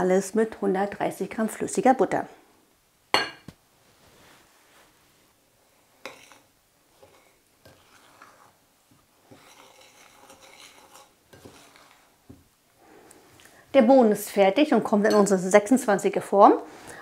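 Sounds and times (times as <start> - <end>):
metal spoon scraping in glass bowl: 6.0 - 8.6, 9.2 - 12.1.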